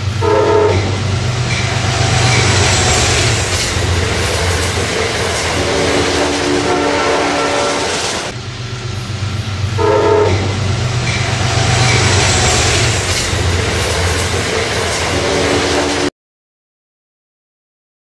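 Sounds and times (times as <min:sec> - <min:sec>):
train horn: 0:00.0 - 0:03.5, 0:05.6 - 0:08.4, 0:09.8 - 0:10.7, 0:15.2 - 0:16.1
train rumbling past: 0:00.0 - 0:16.1.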